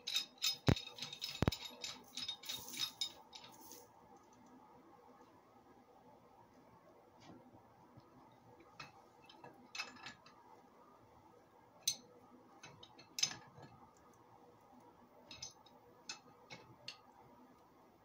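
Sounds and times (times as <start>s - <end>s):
wrench clicking on metal pipe: 0.0s - 3.5s.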